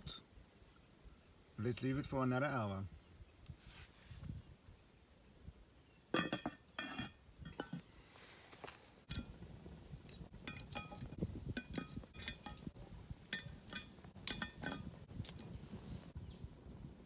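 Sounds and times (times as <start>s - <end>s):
tongs clinking on metal pot lid: 9.1s - 9.3s, 10.1s - 12.7s, 13.3s - 15.0s.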